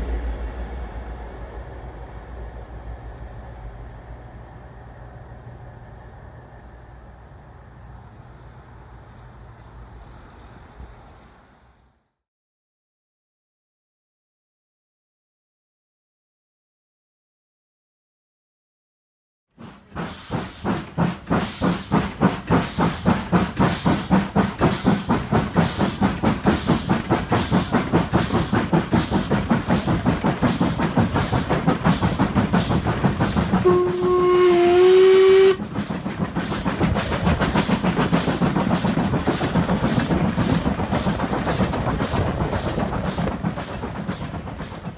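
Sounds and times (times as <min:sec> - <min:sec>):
steam locomotive exhaust beats: 0:19.5 - 0:44.9
steam whistle blast: 0:33.6 - 0:35.6.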